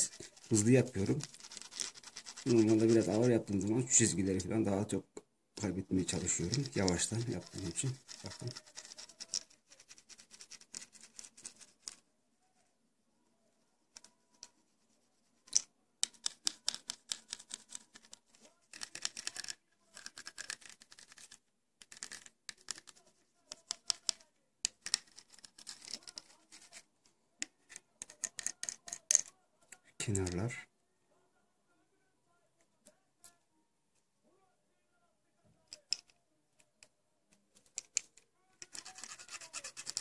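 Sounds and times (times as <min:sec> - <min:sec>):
pen scratching foil tape: 0:00.0 - 0:03.4, 0:06.2 - 0:11.7, 0:38.7 - 0:40.0.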